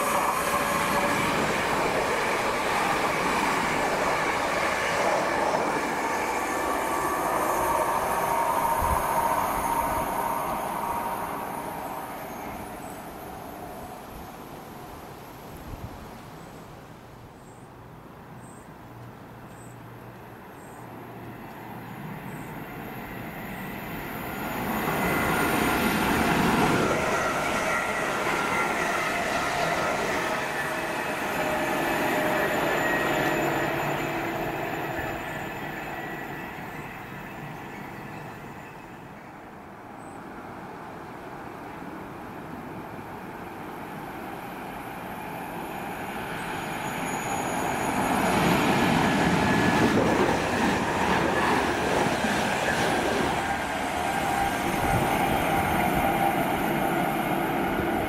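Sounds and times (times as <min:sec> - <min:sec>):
train wheels rumbling: 0:00.0 - 0:13.4, 0:23.6 - 0:38.6, 0:44.3 - 0:58.0
electric train whining: 0:00.0 - 0:14.6, 0:21.4 - 0:39.6, 0:41.9 - 0:58.0.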